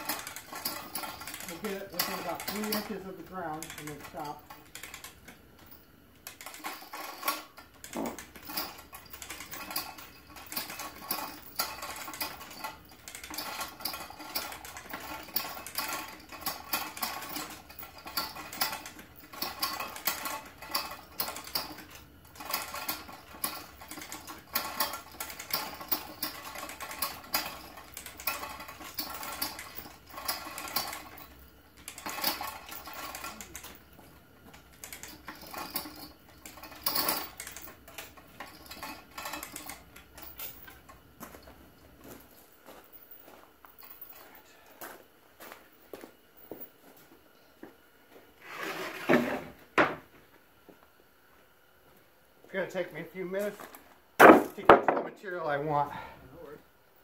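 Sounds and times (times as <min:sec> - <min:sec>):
chain hoist ratchet clicking: 0:00.0 - 0:42.2
chain rattling: 0:00.0 - 0:47.0, 0:52.6 - 0:57.0.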